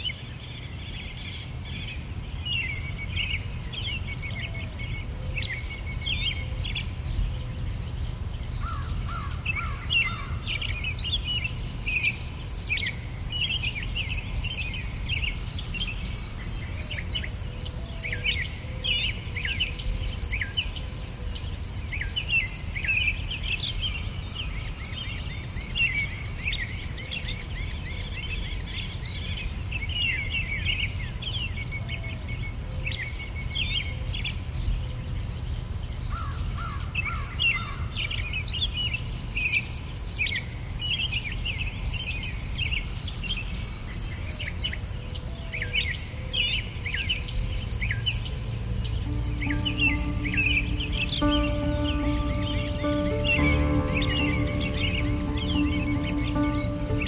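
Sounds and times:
insect chirping: 47.7 - 53.3.

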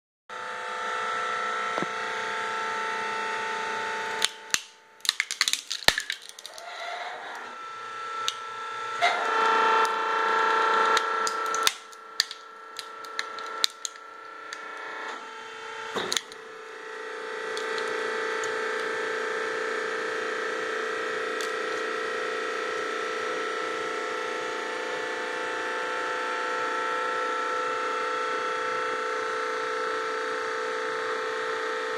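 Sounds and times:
plastic cracking and crunching: 4.2 - 6.7, 10.8 - 14.6, 16.0 - 16.5, 17.5 - 18.9.

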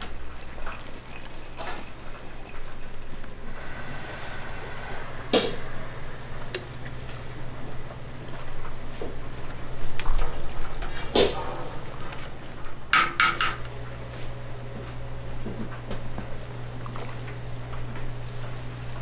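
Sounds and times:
liquid being handled: 0.0 - 3.4
steady hum: 0.0 - 19.0
dishes and utensils clattering: 12.9 - 13.6.

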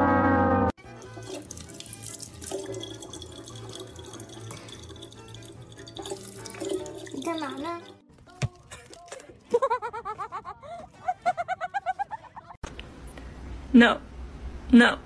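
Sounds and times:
tap water filling plastic bottle: 0.9 - 8.0.

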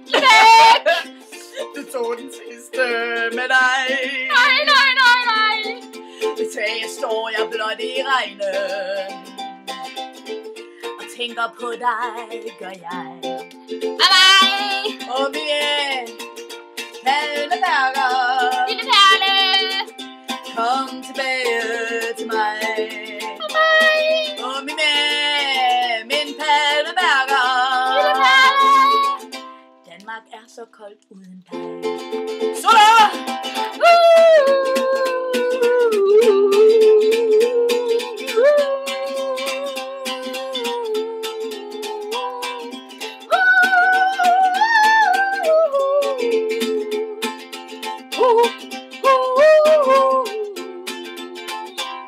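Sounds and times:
ukulele strumming: 0.0 - 30.9, 31.5 - 52.0
woman singing long held notes: 20.5 - 29.3, 32.6 - 47.2, 48.2 - 50.9.

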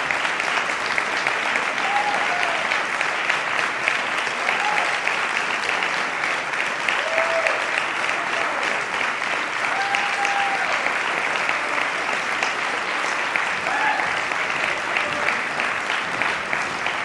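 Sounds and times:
audience applauding: 0.0 - 17.0.

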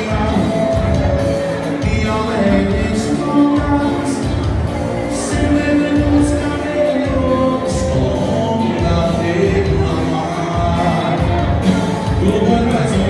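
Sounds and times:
live dance band playing: 0.0 - 13.0
person singing: 0.0 - 13.0.

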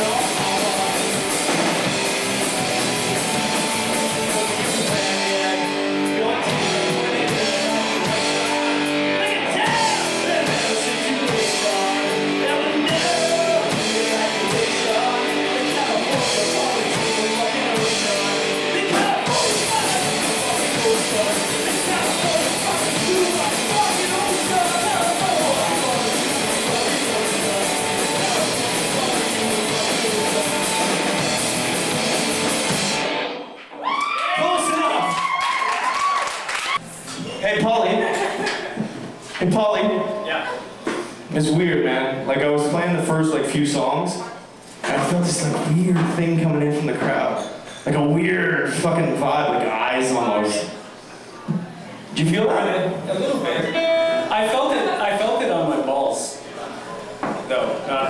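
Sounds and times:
person singing: 0.0 - 1.6, 2.8 - 31.5
bass guitar: 0.0 - 33.5
distorted electric guitars: 0.0 - 33.6, 53.6 - 54.6
drum kit: 0.0 - 33.6.

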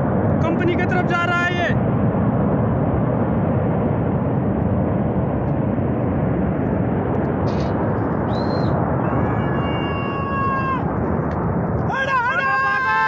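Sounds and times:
flash flood water roaring: 5.8 - 13.0.

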